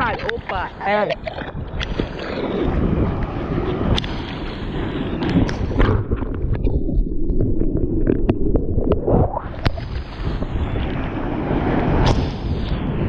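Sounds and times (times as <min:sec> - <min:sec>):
whitewater rumbling: 0:00.0 - 0:13.0.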